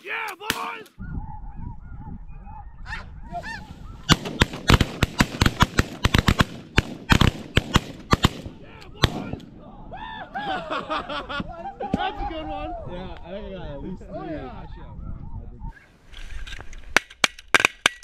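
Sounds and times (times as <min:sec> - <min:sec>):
shotgun shots: 0:04.1 - 0:09.4.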